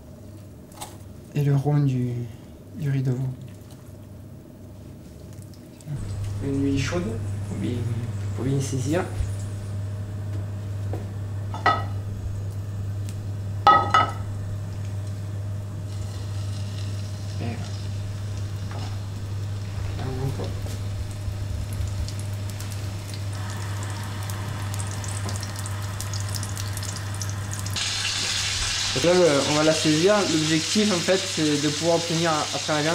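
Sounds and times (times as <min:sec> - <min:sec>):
meat sizzling in frying pan: 0:15.8 - 0:32.9.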